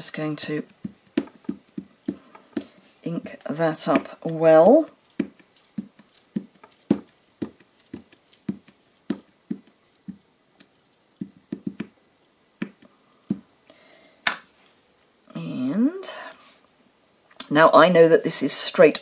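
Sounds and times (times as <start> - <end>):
ink pad tapping on stamp: 0.7 - 2.8, 5.2 - 10.2, 11.2 - 11.9, 12.6 - 13.4.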